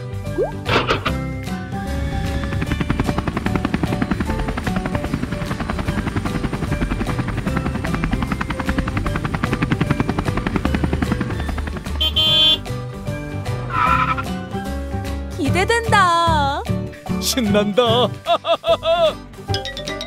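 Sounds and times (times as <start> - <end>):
background music: 0.0 - 20.0
helicopter rotor chopping: 1.1 - 12.6.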